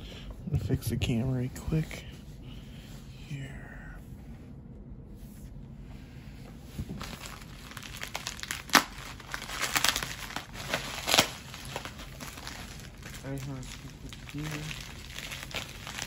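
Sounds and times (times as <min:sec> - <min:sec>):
plastic bag crinkling: 0:06.9 - 0:16.0.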